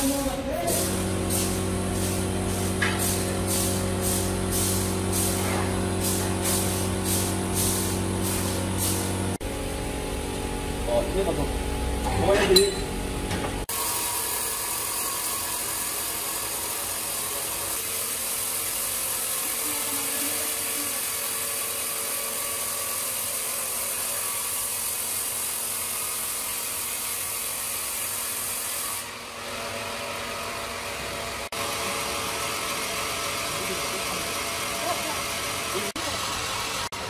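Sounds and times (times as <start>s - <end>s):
band sawmill whirring: 29.0s - 37.0s.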